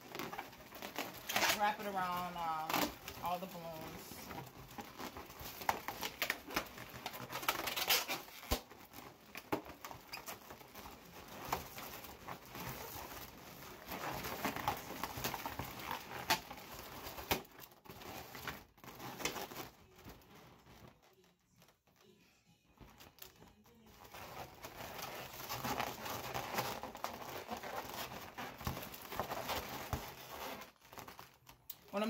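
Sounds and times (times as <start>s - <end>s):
balloons rubbing and squeaking: 0.0s - 32.0s
small clicks and rustles: 0.0s - 32.0s.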